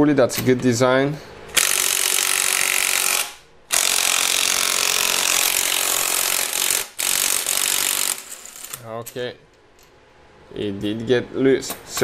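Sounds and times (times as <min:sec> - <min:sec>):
impact wrench hammering: 0:01.5 - 0:08.8.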